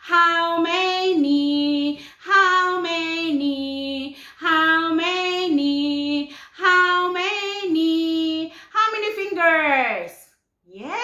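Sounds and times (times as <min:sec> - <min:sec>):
woman singing unaccompanied: 0:00.0 - 0:09.4
breath: 0:04.1 - 0:04.4, 0:06.3 - 0:06.6.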